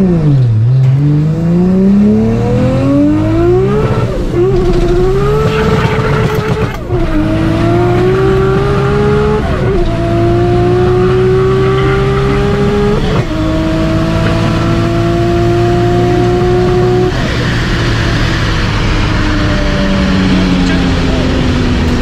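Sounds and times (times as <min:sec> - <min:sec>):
car engine accelerating: 0:00.0 - 0:22.0.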